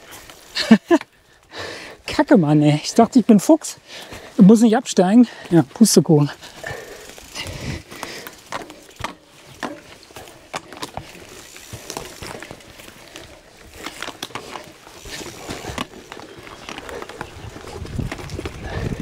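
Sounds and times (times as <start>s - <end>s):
footsteps on forest trail: 0.0s - 19.0s
bike clicks and knocks: 6.2s - 19.0s.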